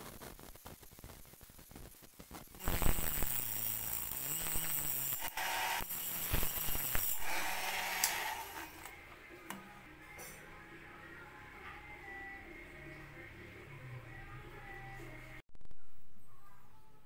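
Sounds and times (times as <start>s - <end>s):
rotary tool cutting metal: 2.6s - 9.0s.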